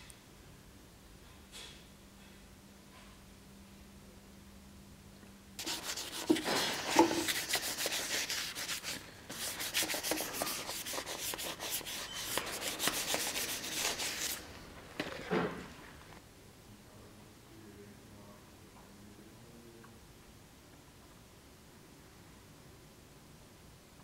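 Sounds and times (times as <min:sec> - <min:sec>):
gloved hand scrubbing steel: 0:05.6 - 0:14.5.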